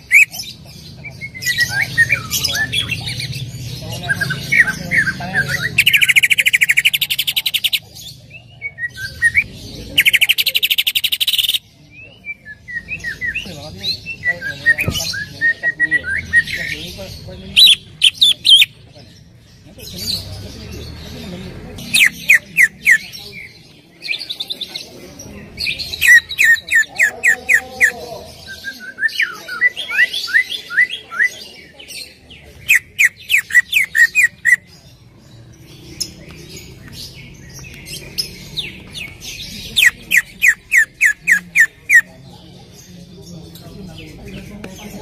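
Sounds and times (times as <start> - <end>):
bird singing fast sharp notes: 0.0 - 18.8.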